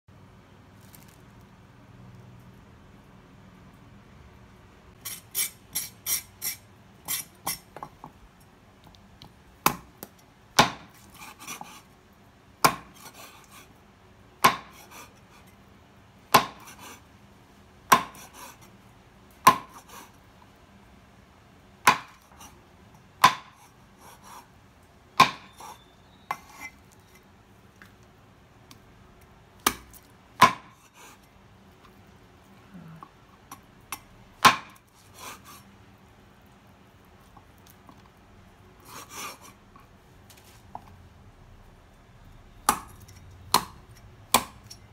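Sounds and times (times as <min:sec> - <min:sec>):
cleaver chopping on wooden block: 0:09.6 - 0:10.9, 0:12.6 - 0:13.0, 0:14.4 - 0:14.8, 0:16.3 - 0:16.7, 0:17.9 - 0:18.2, 0:19.4 - 0:19.8, 0:21.8 - 0:22.3, 0:23.2 - 0:23.6, 0:25.2 - 0:25.6, 0:29.6 - 0:30.8, 0:34.4 - 0:34.8, 0:42.6 - 0:44.8.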